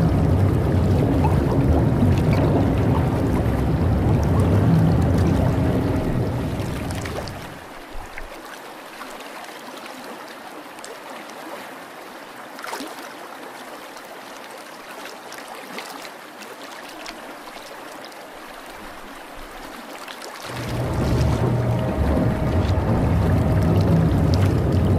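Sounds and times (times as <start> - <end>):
low rumble: 0.0 - 7.7, 20.5 - 24.9
water trickling: 0.0 - 8.4, 20.2 - 24.9.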